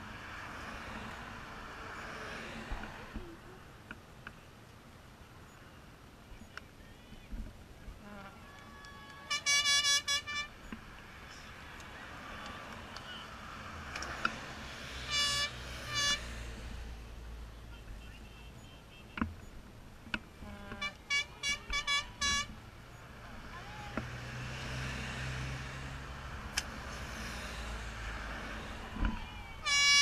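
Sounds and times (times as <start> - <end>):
vehicle horns tooting: 8.0 - 13.5, 15.0 - 16.7, 17.6 - 19.6, 20.4 - 24.1, 28.9 - 30.0.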